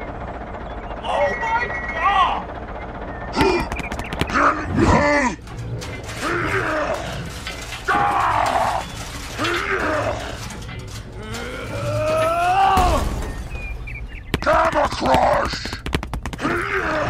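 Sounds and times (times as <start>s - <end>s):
deep cartoon voice growling: 4.6s - 5.4s.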